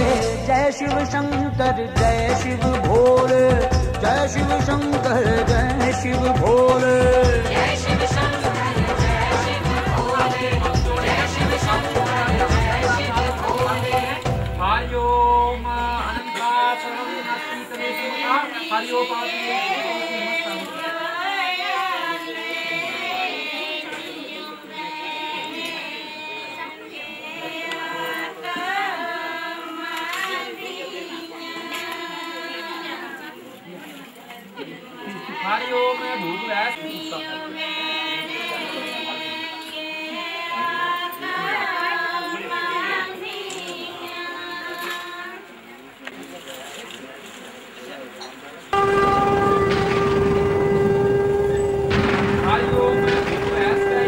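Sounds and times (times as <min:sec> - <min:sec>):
music with long held notes: 0:00.0 - 0:16.2, 0:48.8 - 0:54.0
group singing high wavering voices: 0:04.8 - 0:14.3, 0:48.8 - 0:54.0.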